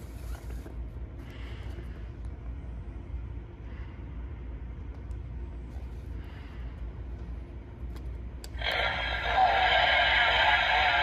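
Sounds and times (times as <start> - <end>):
low hum of shop floor: 0.0 - 11.0
animatronic speaker playing loudly: 8.6 - 11.0.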